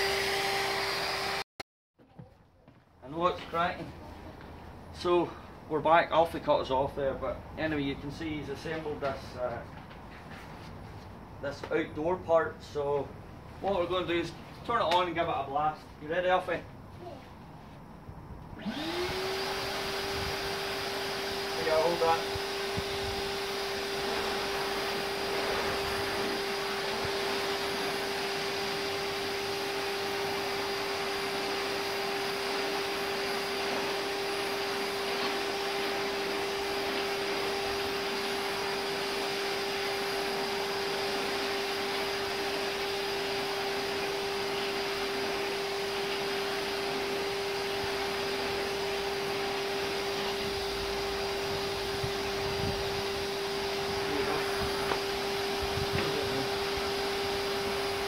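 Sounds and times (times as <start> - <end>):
vacuum cleaner running: 0.0 - 1.5, 18.6 - 58.0
vacuum tool on artificial grass: 0.0 - 58.0.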